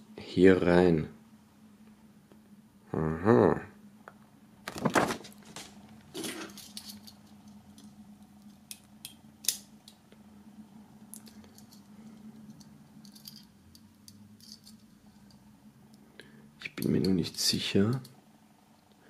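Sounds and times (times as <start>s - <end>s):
light metallic jingling: 11.2s - 15.4s.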